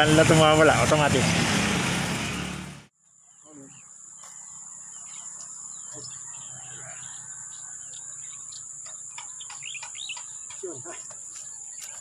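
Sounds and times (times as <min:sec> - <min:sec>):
insects droning: 0:03.0 - 0:12.0
bird chirps: 0:03.1 - 0:12.0.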